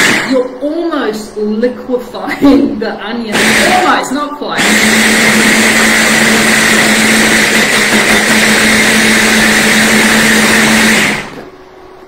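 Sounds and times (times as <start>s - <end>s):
stick blender motor running: 0.0s - 0.4s, 3.3s - 11.5s.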